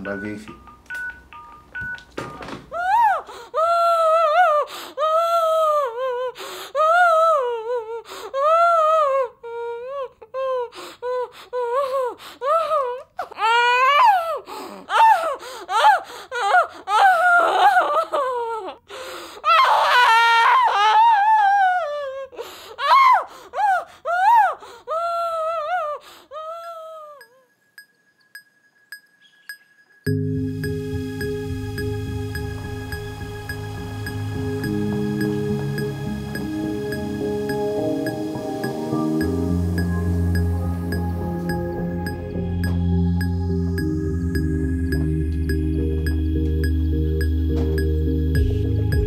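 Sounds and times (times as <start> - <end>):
person crying and wailing: 2.7 - 18.8.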